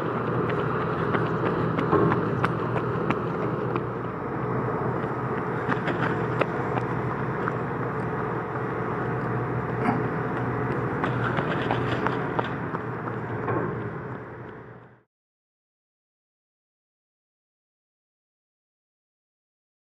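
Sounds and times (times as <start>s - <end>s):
heavy diesel machinery running: 0.0s - 15.1s.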